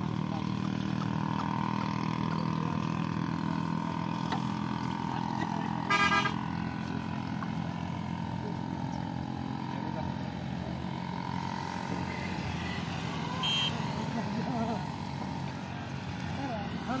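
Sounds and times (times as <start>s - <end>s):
low engine hum: 0.0s - 17.0s
vehicle horn honk: 5.8s - 6.4s, 13.3s - 13.9s.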